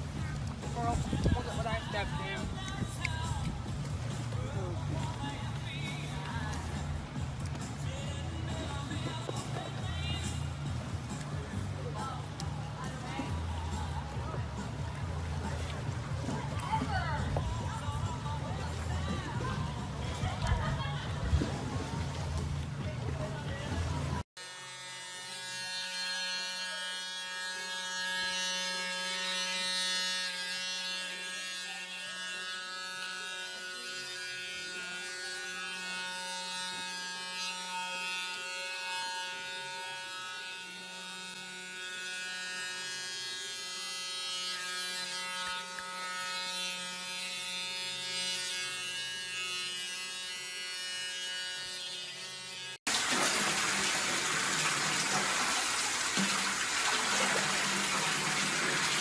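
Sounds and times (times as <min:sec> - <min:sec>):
electric device buzzing: 0:00.0 - 0:59.0
tap running into bathtub: 0:52.9 - 0:59.0.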